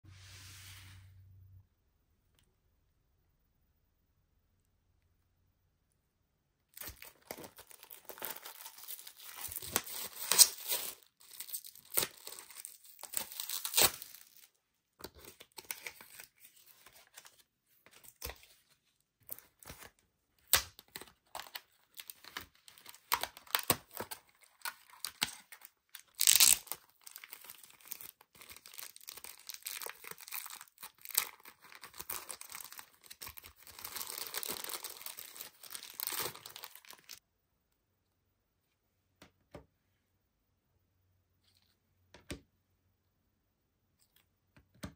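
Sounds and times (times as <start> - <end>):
plastic wrapping crinkling and tearing: 6.8 - 14.5, 21.4 - 37.2
plastic bag crinkling: 26.0 - 37.2.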